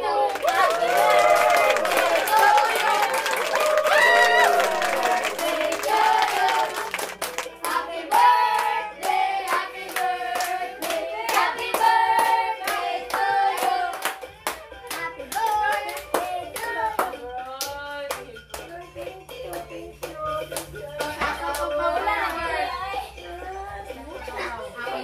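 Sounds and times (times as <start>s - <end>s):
people singing together: 0.0s - 25.0s
hands clapping: 0.2s - 21.7s.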